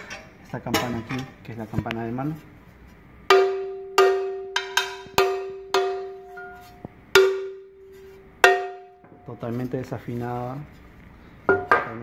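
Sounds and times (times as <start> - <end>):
cowbell struck with a stick: 3.3 - 7.7, 8.4 - 9.0.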